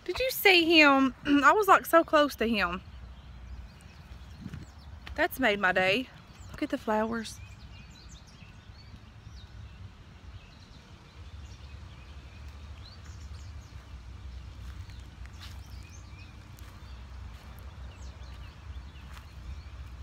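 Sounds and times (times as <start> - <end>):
small birds chirping: 0.0 - 20.0
steady low rumble: 7.4 - 20.0.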